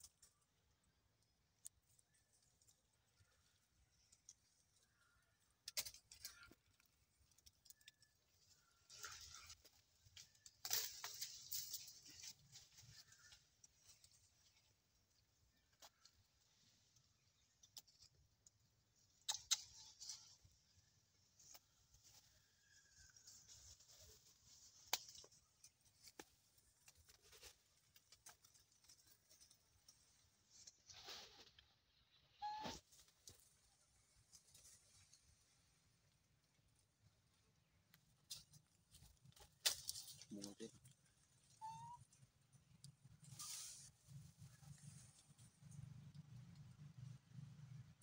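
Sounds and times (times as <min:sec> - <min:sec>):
faint rustling and crackling: 0:00.0 - 0:48.0.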